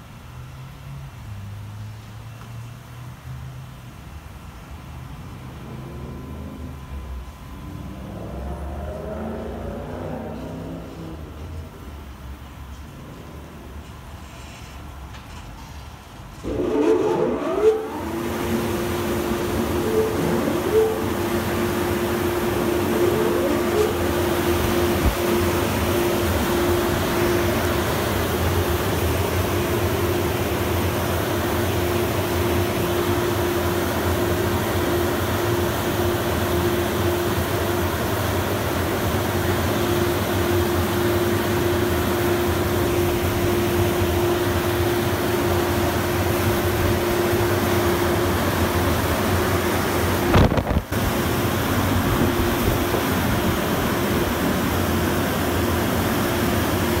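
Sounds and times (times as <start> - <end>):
fan motors humming: 0.0 - 57.0
blower dryer rushing air: 5.2 - 12.0, 16.4 - 57.0.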